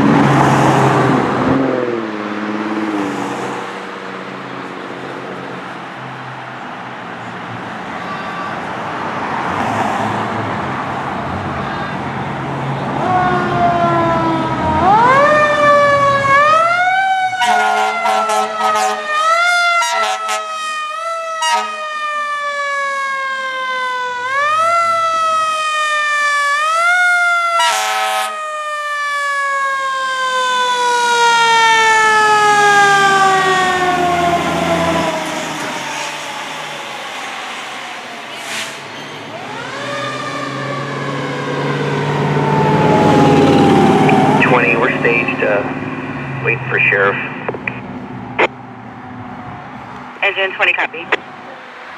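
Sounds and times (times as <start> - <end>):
mechanical siren wailing: 13.0 - 35.8, 39.4 - 44.6
air horn blasts: 17.4 - 19.2, 19.8 - 20.6, 21.4 - 21.8, 27.6 - 28.3.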